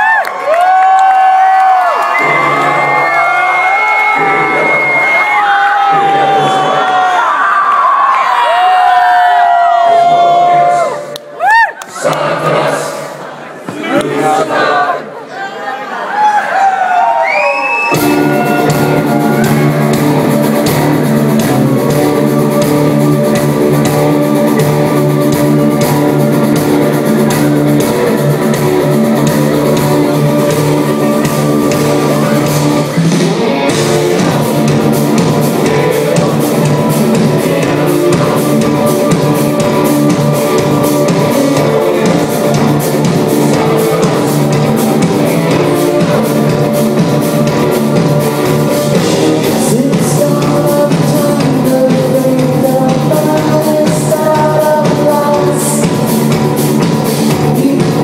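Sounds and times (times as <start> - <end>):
electric guitars: 1.5 - 7.2, 17.9 - 58.0
drum kit: 2.1 - 7.1, 17.9 - 58.0.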